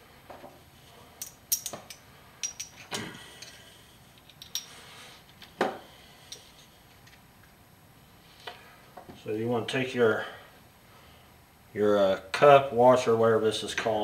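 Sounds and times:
metal parts clinking on wood: 1.2 - 3.6, 4.2 - 4.7.

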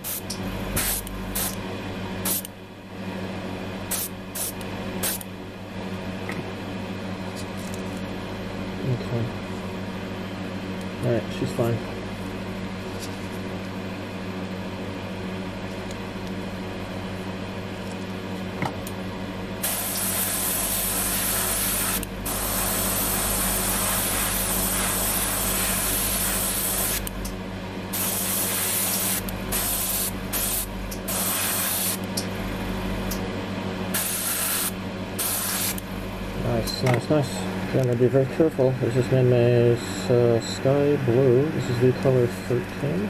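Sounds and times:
constant low hum: 0.0 - 43.0
airbrush spraying hiss: 0.8 - 1.6, 2.2 - 2.5, 19.6 - 27.1, 27.9 - 32.0, 33.9 - 35.8.

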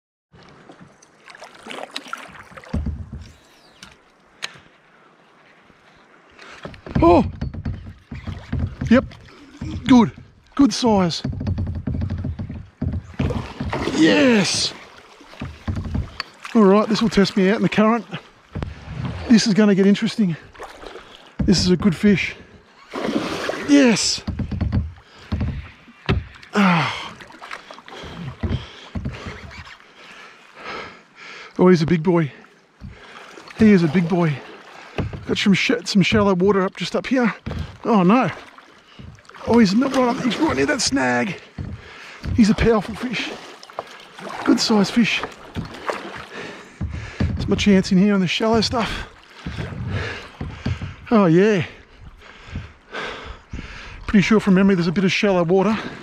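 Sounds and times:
light water noise: 0.3 - 56.0
water splashes: 0.3 - 56.0
dull knock against hull: 2.6 - 3.9, 6.6 - 14.7, 15.3 - 16.3, 18.5 - 19.2, 24.2 - 26.5, 28.0 - 29.8, 32.8 - 33.8, 34.9 - 36.6, 37.4 - 44.4, 45.2 - 52.8
river water rushing: 13.2 - 21.4, 22.8 - 24.2, 36.9 - 47.3
person exclaiming: 13.9 - 14.7.

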